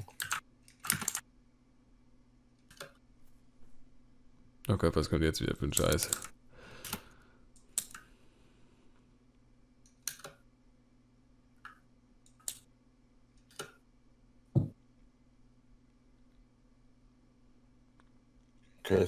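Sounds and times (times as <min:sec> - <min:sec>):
sharp clicks: 0:09.9 - 0:10.4.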